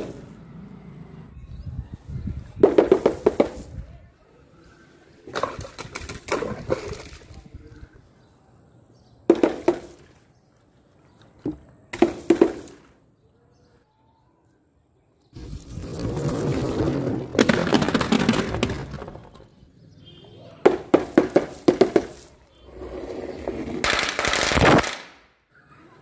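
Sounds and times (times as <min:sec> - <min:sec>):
objects smashing against a wall: 0:15.7 - 0:19.5.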